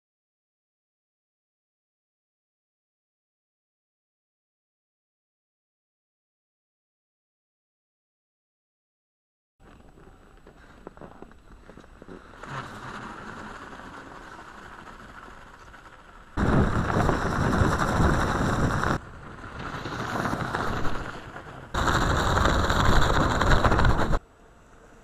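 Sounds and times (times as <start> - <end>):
rubber track rumbling over snow: 9.7 - 24.2.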